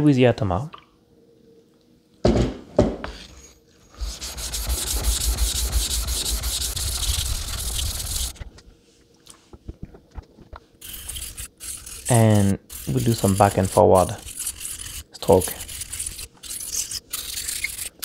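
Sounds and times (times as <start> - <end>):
plate rasping on wet whetstone: 4.0 - 8.3, 10.8 - 18.0.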